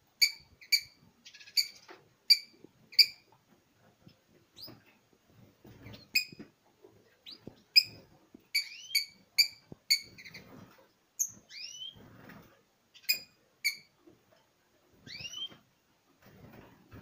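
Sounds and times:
finches chirping: 0:00.2 - 0:03.3, 0:07.2 - 0:10.5, 0:11.2 - 0:12.0, 0:15.0 - 0:15.6.

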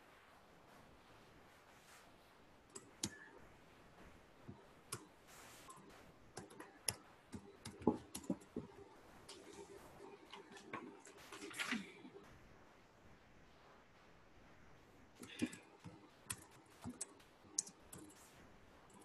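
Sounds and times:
computer keyboard typing: 0:02.7 - 0:03.4, 0:04.5 - 0:12.1, 0:15.2 - 0:18.2.

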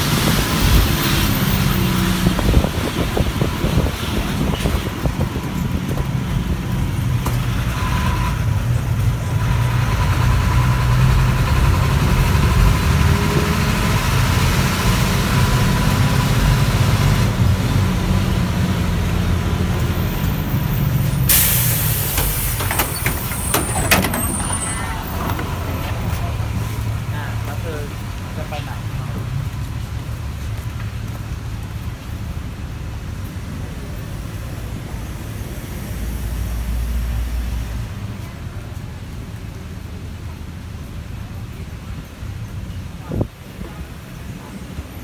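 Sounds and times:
bus engine rumble: 0:00.0 - 0:45.0
compressed air hiss: 0:21.3 - 0:23.0.

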